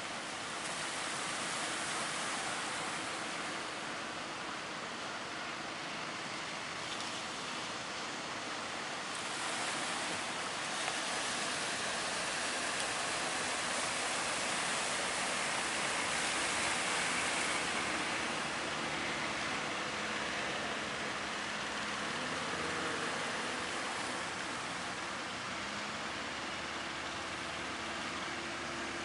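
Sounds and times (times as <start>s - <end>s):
boat engine drone: 0.0s - 29.0s.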